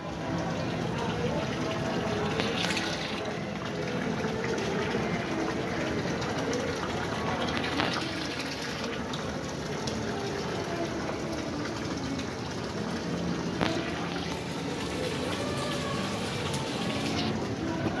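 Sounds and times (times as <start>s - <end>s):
water splashing into basin: 1.6s - 18.0s.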